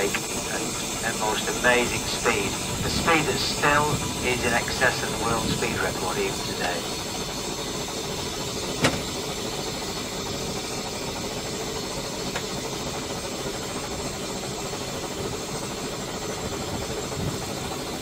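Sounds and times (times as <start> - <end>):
steam boat hiss and rumble: 0.0 - 18.0.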